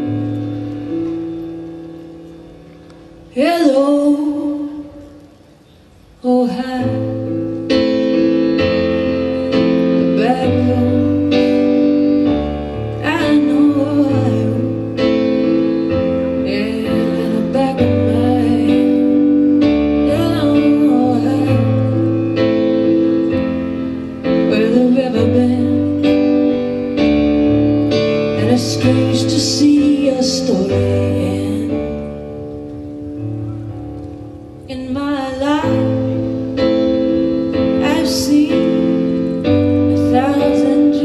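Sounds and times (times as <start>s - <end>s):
electric piano chords: 0.0s - 41.0s
woman singing: 3.3s - 5.2s, 6.2s - 12.3s, 12.9s - 22.5s, 24.2s - 26.6s, 28.3s - 32.3s, 34.6s - 41.0s.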